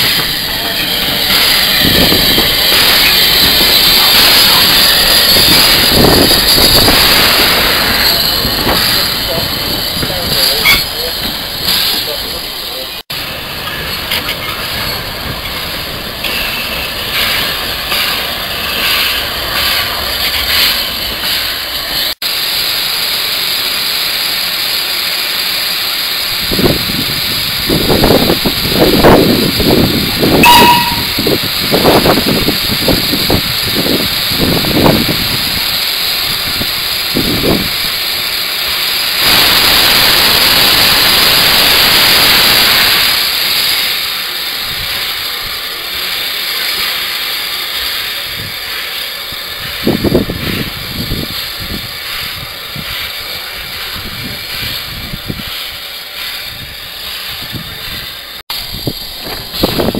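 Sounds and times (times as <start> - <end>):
steady steam hiss: 0.0 - 59.9
steam blowing from drain cocks: 16.2 - 59.9
steam engine exhaust puffs: 16.3 - 59.9.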